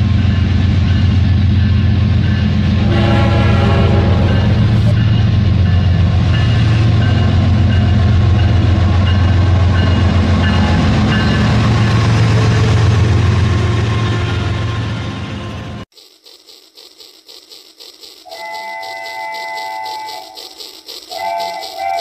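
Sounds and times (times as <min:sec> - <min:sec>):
toy train humming on track: 0:00.0 - 0:11.9, 0:15.9 - 0:22.0
toy train motor hum: 0:15.9 - 0:22.0.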